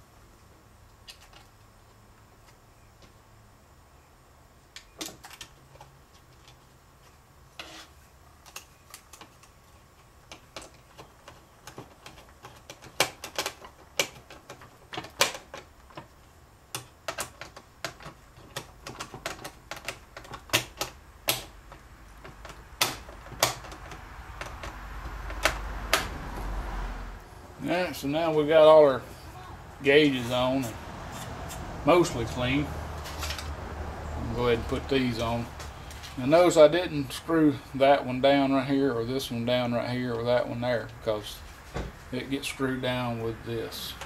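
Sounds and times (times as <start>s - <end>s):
small parts and tools clicking: 4.7s - 26.1s.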